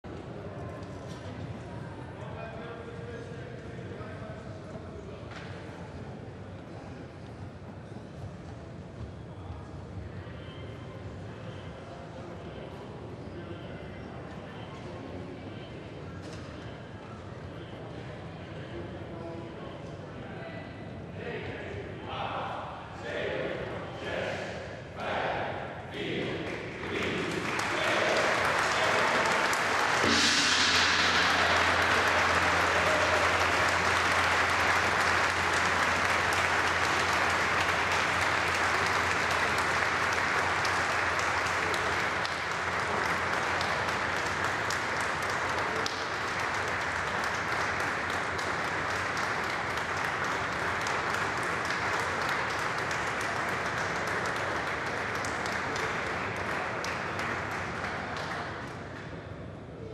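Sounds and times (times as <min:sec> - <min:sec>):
crowd applauding: 0:26.5 - 0:58.9.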